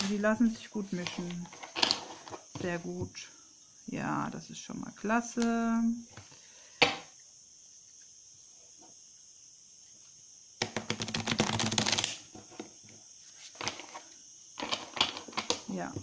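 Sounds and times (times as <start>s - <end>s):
cards riffling: 10.6s - 12.2s.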